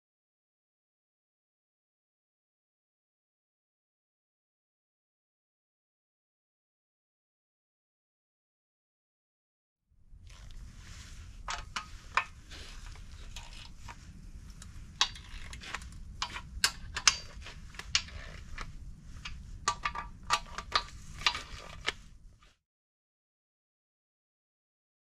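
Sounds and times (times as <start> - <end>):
low steady hum: 10.0 - 22.6
metal clinking: 14.6 - 18.4.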